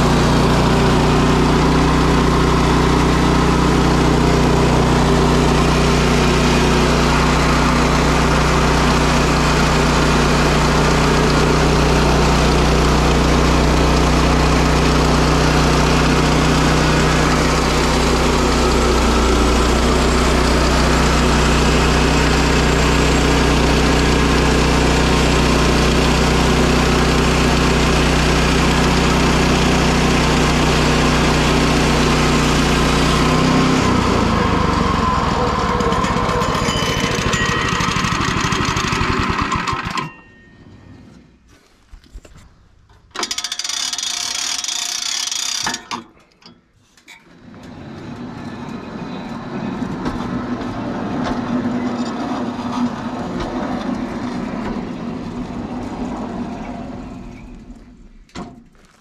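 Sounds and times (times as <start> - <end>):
band saw cutting log: 0.0 - 40.2
sawmill engine running: 0.0 - 41.3, 42.0 - 46.4, 47.3 - 59.0.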